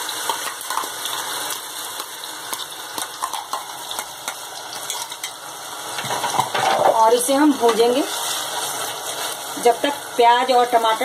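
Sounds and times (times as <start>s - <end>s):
oil crackling and spattering: 0.0s - 6.9s
paste sizzling in hot oil: 0.0s - 11.0s.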